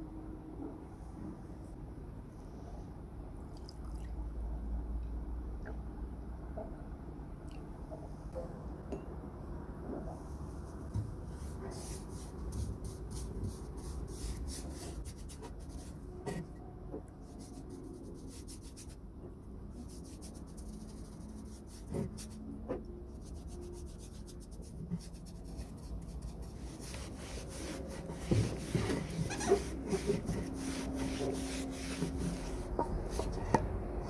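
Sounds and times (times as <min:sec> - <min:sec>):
paintbrush scraping over wood: 0:23.2 - 0:33.6.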